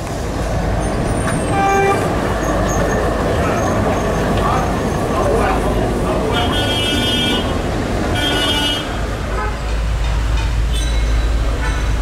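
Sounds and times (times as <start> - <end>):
street traffic: 0.0 - 12.0
tram rumbling: 0.0 - 12.0
vehicle horn honking: 6.3 - 7.5, 8.2 - 9.6.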